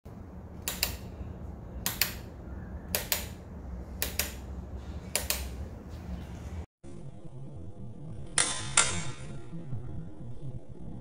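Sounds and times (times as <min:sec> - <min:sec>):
steady low hum: 0:00.1 - 0:11.0
sharp clicks in pairs: 0:00.6 - 0:01.1, 0:01.8 - 0:02.3, 0:02.9 - 0:03.4, 0:04.0 - 0:04.5, 0:05.1 - 0:05.6.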